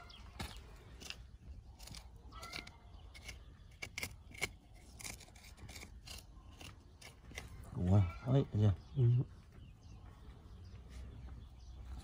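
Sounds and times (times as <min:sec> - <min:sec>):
stick scraping gravelly soil: 0:00.0 - 0:08.1.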